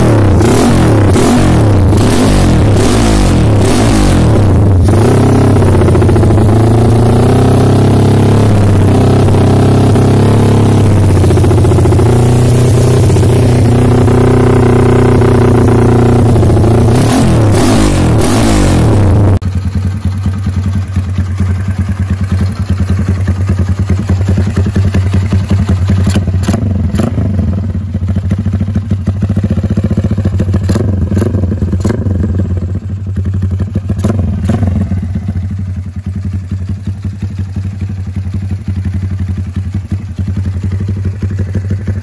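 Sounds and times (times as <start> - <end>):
motorcycle engine running: 0.0 - 42.0
sharp exhaust cracks: 8.4 - 19.5.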